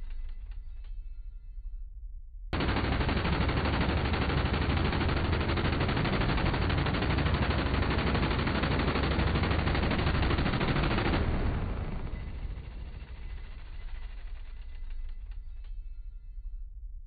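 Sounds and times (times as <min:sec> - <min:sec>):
rotary machine gun firing: 0:02.6 - 0:15.6.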